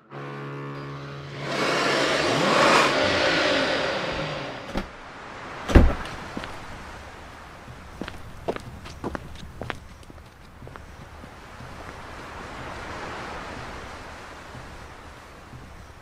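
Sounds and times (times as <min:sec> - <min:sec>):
car engine revving past: 0:00.0 - 0:04.8
heavy thump: 0:05.7 - 0:06.5.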